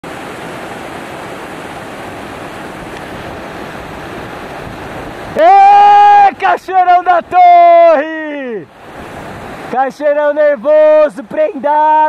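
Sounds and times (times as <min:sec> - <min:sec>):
waterfall crashing down rocks: 0:00.0 - 0:12.0
man shouting: 0:05.4 - 0:08.6, 0:09.8 - 0:12.0.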